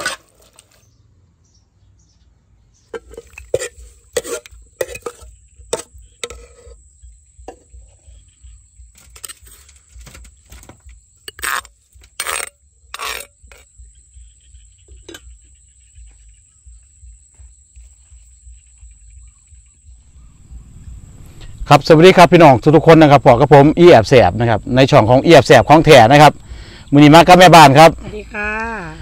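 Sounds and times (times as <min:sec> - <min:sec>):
utensils knocking against bowl: 0:03.0 - 0:06.6.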